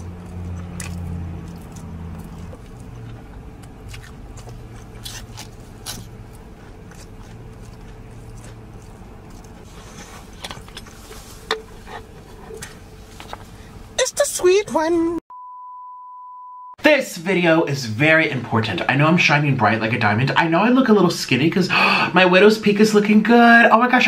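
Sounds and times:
person chewing food: 0:00.0 - 0:13.8.

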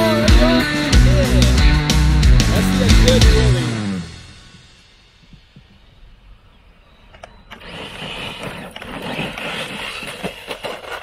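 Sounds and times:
tyres spinning on gravel: 0:07.4 - 0:11.0
rc truck electric motor: 0:07.5 - 0:11.0.

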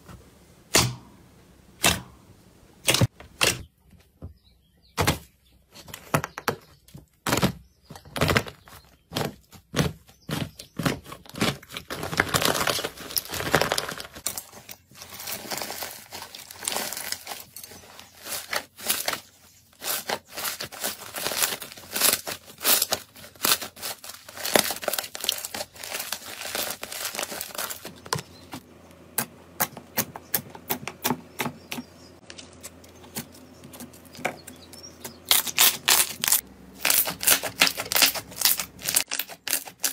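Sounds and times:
slime crust crackling: 0:35.3 - 0:39.9.

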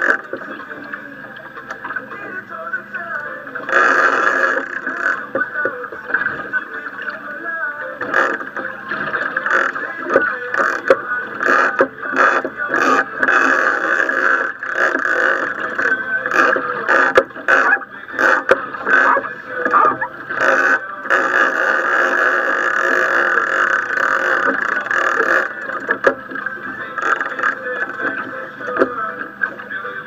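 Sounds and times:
small boat at sea: 0:00.0 - 0:30.0
knocks and splashes: 0:04.8 - 0:07.2, 0:08.0 - 0:20.8.

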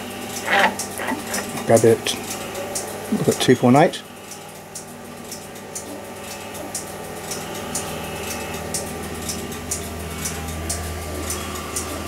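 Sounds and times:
electrical hum and buzz: 0:00.0 - 0:12.0
deeper hum: 0:04.9 - 0:12.0.

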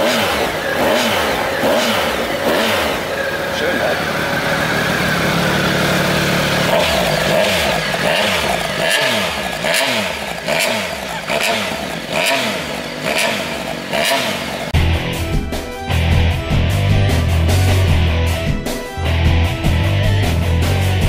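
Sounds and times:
motorcycle engine revving: 0:00.0 - 0:14.9.

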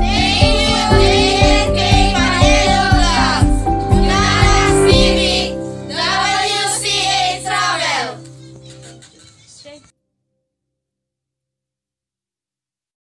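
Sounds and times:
steady music beat: 0:00.0 - 0:05.6
person singing: 0:00.0 - 0:08.2
held music notes: 0:00.0 - 0:08.8.

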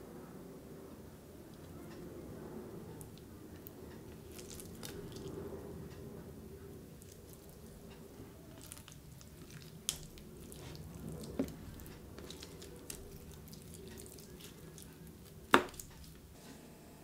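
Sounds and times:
wet squishing of raw chicken: 0:03.0 - 0:05.5, 0:06.9 - 0:16.3.

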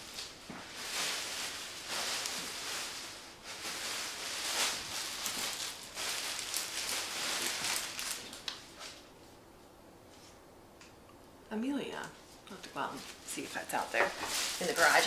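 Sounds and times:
sharp crinkles: 0:00.0 - 0:09.1, 0:13.0 - 0:15.0.

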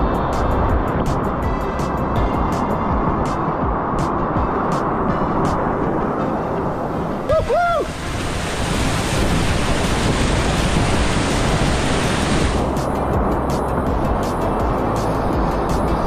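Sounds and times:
whitewater rapids rushing: 0:07.0 - 0:13.1
water splashing: 0:07.2 - 0:12.7
person shouting: 0:07.3 - 0:08.0.

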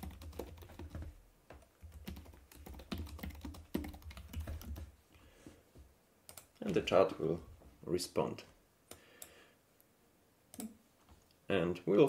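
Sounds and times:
computer keyboard typing: 0:00.0 - 0:04.9, 0:06.3 - 0:06.8.

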